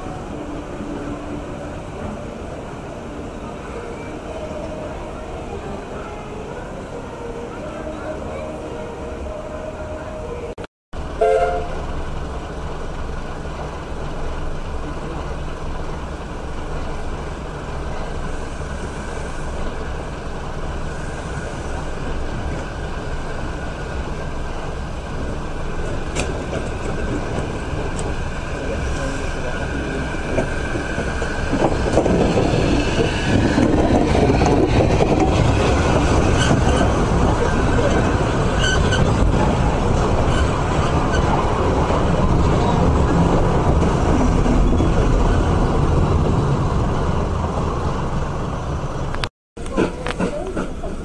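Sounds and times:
train arriving slowly: 0.0s - 51.0s
train coaches rumbling past: 0.0s - 51.0s
train clank: 25.2s - 28.2s, 49.6s - 51.0s.

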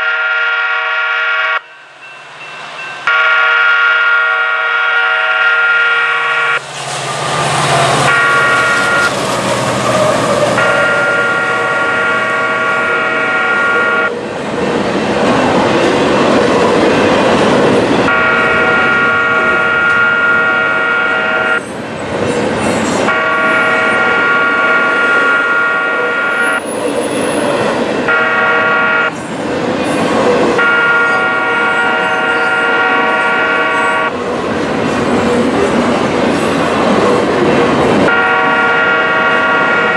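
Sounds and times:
locomotive horn blasts: 0.0s - 1.7s, 3.0s - 6.6s, 7.8s - 9.1s, 10.1s - 14.1s, 18.0s - 21.6s, 23.1s - 26.6s, 28.0s - 29.2s, 30.6s - 34.2s, 38.0s - 39.9s
locomotive engines: 1.6s - 39.9s.

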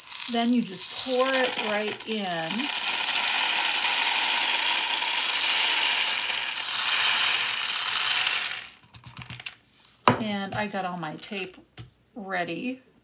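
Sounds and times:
popcorn kernels pouring rattle: 0.0s - 9.6s.

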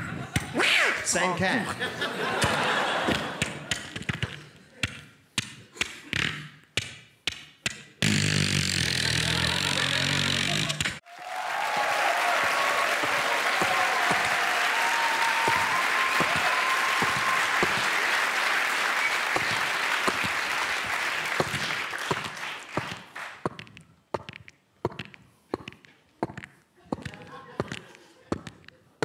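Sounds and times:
audience applause: 11.0s - 23.4s
whistling: 11.2s - 21.0s.

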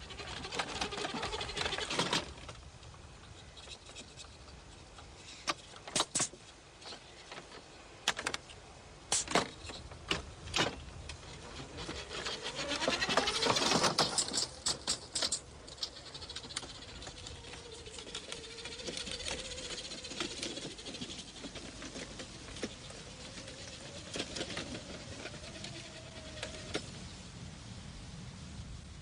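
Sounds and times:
toy car motor and servos whirring: 0.0s - 2.6s, 3.2s - 7.5s, 9.1s - 26.8s
sharp clicks: 5.5s - 6.4s, 9.1s - 10.2s.

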